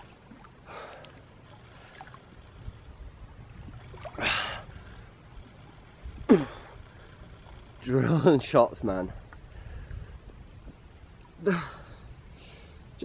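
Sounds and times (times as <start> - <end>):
water sloshing and lapping: 0.0 - 7.8.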